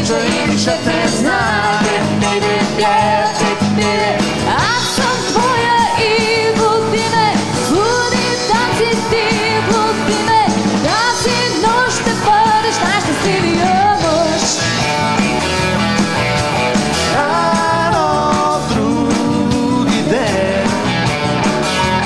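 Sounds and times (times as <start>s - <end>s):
woman singing with vibrato: 0.0s - 14.6s
drums: 0.0s - 22.0s
electric and acoustic guitars: 0.0s - 22.0s.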